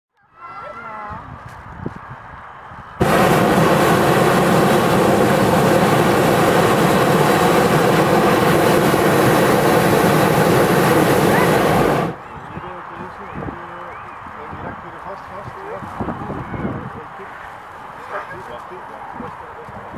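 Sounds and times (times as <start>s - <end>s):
propane burner blast: 3.0s - 12.2s.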